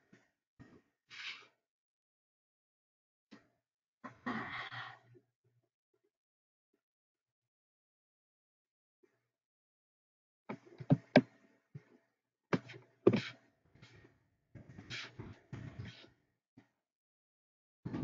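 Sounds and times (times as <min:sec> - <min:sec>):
knocks and thumps: 0:10.5 - 0:11.2, 0:12.6 - 0:13.3
rustling and handling noise: 0:12.6 - 0:13.3.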